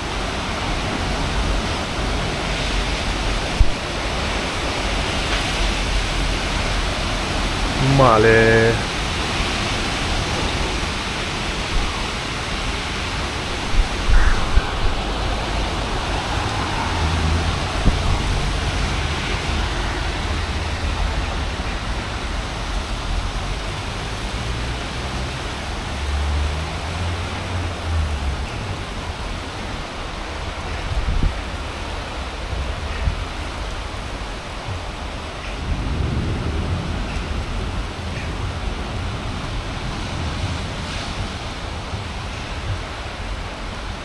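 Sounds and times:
heavy rain pouring: 0.0s - 44.0s
low thunder rumbles: 8.7s - 24.4s, 34.7s - 43.5s.

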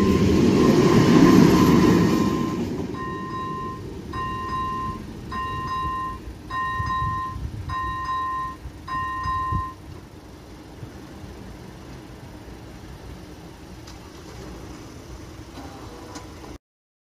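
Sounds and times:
crossing signal electronic tone: 0.0s - 9.9s
low steady rumble: 0.0s - 16.6s.

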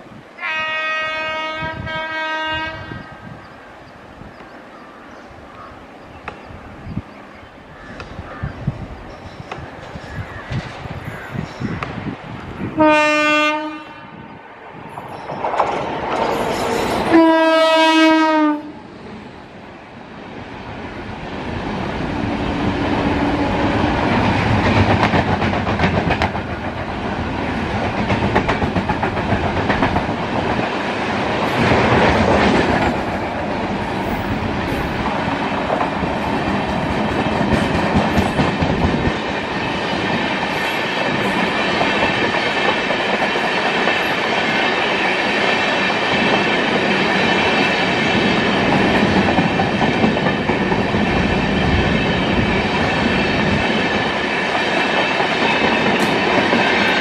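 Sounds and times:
electric locomotive horn: 0.4s - 3.2s, 12.8s - 14.3s, 16.3s - 18.8s
train wheels clacking over rail joints: 15.0s - 17.6s, 22.6s - 57.0s.

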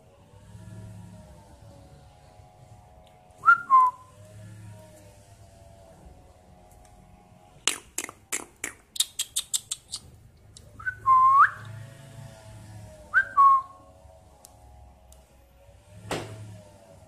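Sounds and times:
cockatiel clicking chirps: 8.6s - 10.1s.

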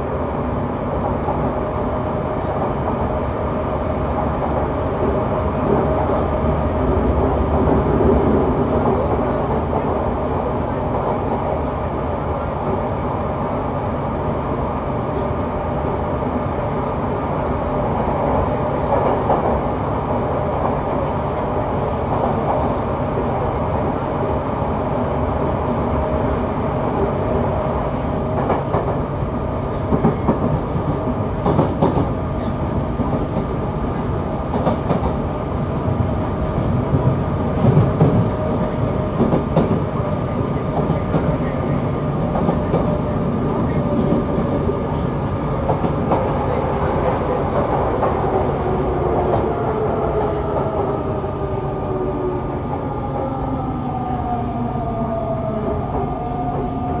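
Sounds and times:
wheels rumbling on rail: 0.0s - 57.0s
rail joint clicks: 18.2s - 19.8s, 27.4s - 29.1s, 29.7s - 53.3s.

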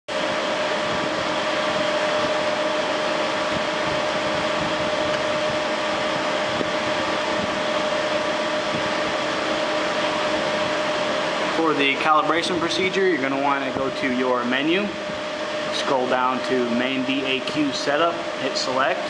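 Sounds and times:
fan whirring: 0.1s - 19.0s.

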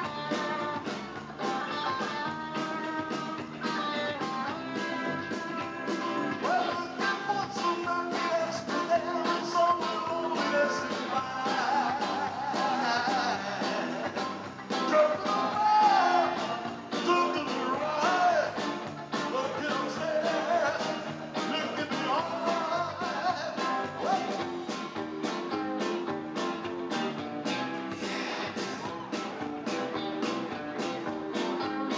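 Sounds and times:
bass guitar: 0.0s - 31.9s
drums with steady beat: 0.0s - 31.9s
electric guitars: 0.0s - 31.9s
man singing: 4.9s - 24.5s.

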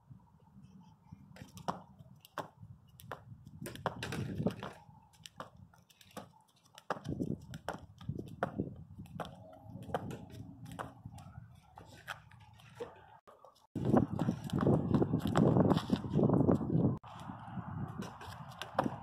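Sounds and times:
jump rope slapping asphalt: 1.4s - 11.3s, 13.8s - 16.0s.

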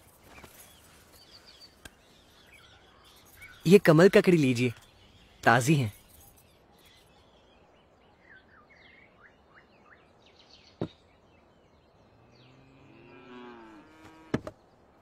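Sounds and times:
small birds chirping: 0.0s - 15.0s
cow mooing: 12.3s - 14.4s.

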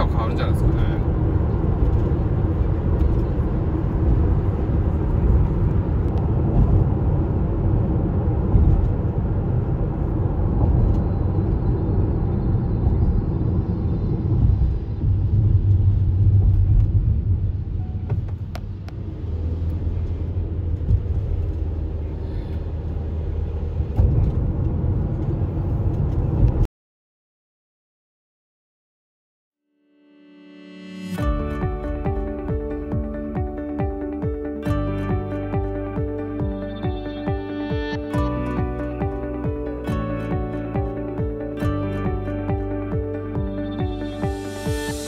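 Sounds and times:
car engine: 0.0s - 26.7s, 30.9s - 45.0s
tyres rumbling on wet road: 0.0s - 26.7s.

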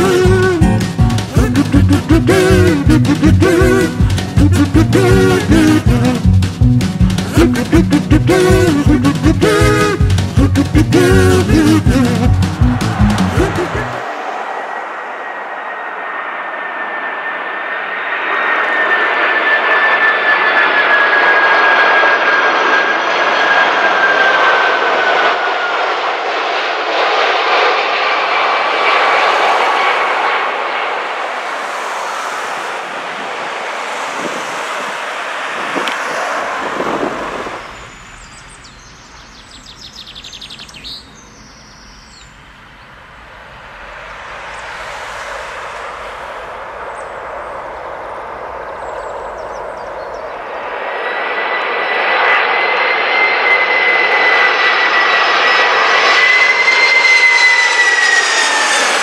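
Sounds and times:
jet engines roaring: 0.0s - 39.4s, 42.4s - 59.0s
high jet engine whine: 0.0s - 59.0s
faint bird chirps: 37.7s - 42.9s.

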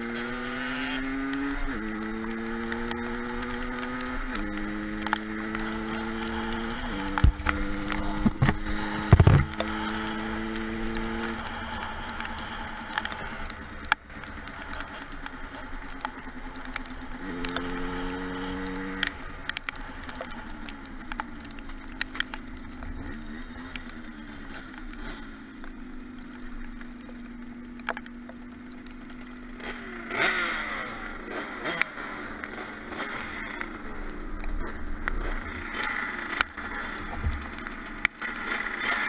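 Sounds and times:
two-stroke motorbike engine: 0.0s - 39.0s
sharp clicks: 1.3s - 29.8s.

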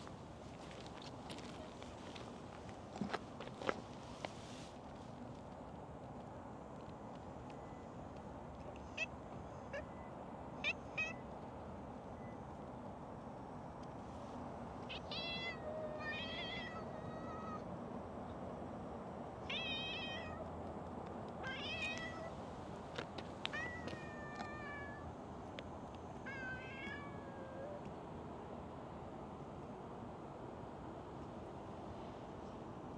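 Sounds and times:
steady background hiss: 0.0s - 32.9s
cat meowing: 10.6s - 11.2s, 14.9s - 17.6s, 23.5s - 25.0s, 26.3s - 27.8s.

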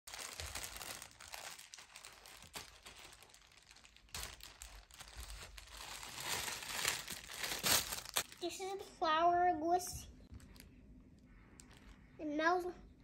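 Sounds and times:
plastic bag crinkling: 0.1s - 8.6s, 11.6s - 12.0s.

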